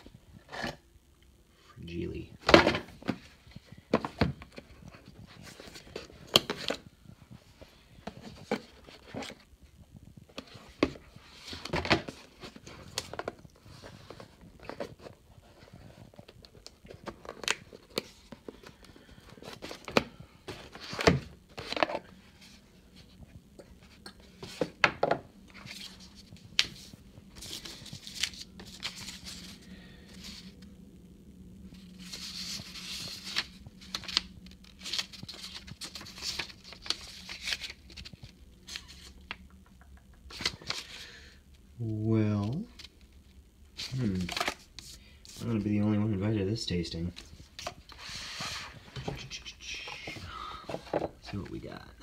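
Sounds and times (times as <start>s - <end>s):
paper leaflet rustling: 25.5s - 30.6s, 32.0s - 39.4s, 40.3s - 41.0s, 43.8s - 45.6s.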